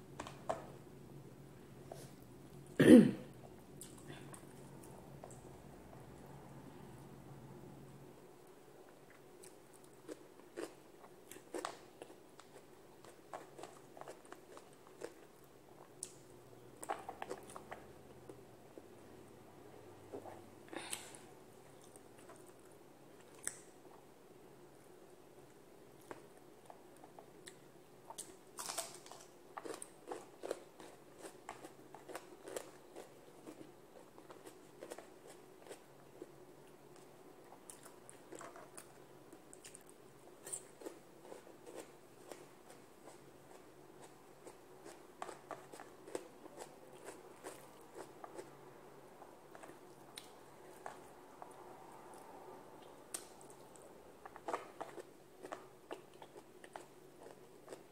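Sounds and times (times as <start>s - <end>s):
close-up chewing and crunching: 8.8s - 18.9s, 25.9s - 48.6s, 49.2s - 57.9s.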